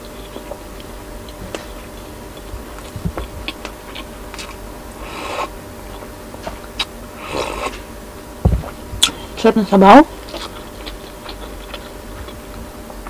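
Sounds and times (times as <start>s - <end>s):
wet chewing clicks: 0.0s - 4.6s, 10.2s - 12.7s
slurping soup: 4.3s - 5.6s, 7.2s - 7.8s.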